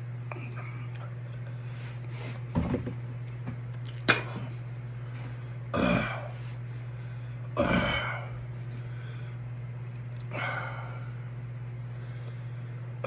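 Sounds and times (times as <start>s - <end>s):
low hum: 0.0s - 13.0s
man burping: 5.7s - 6.4s, 7.6s - 8.4s.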